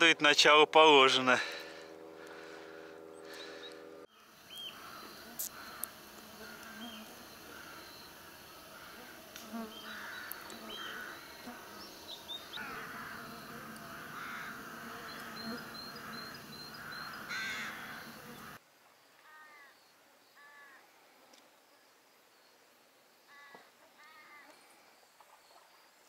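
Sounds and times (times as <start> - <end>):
birds cawing: 1.4 - 18.6.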